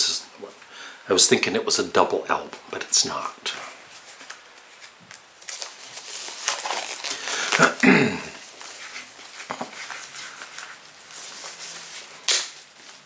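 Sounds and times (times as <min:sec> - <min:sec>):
plastic crinkling: 0:03.9 - 0:13.0.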